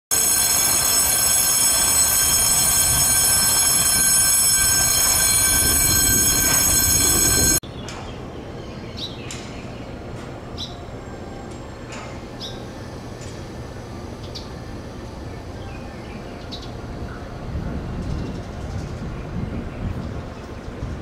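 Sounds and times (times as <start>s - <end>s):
electric bell ringing: 0.1s - 7.6s.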